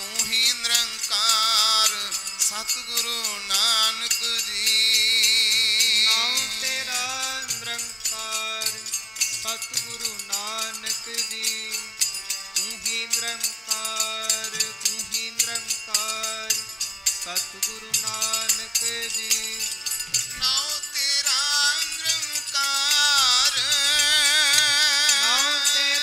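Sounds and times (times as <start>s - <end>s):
harmoniums playing: 0.0s - 26.0s
voices singing: 0.0s - 26.0s
tabla drums fast beat: 17.8s - 26.0s.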